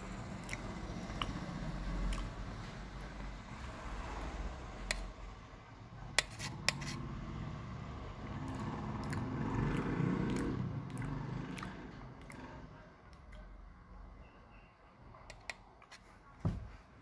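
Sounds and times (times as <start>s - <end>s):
chewing: 0.4s - 2.7s, 8.4s - 13.5s
spoon scraping metal plate: 6.2s - 7.0s.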